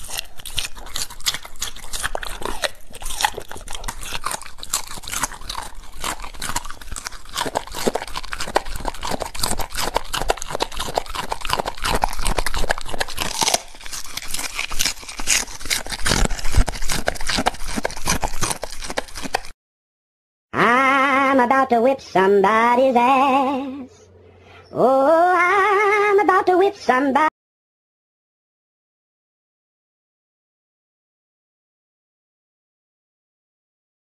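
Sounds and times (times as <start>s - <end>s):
dog crunching vegetables: 0.0s - 19.6s.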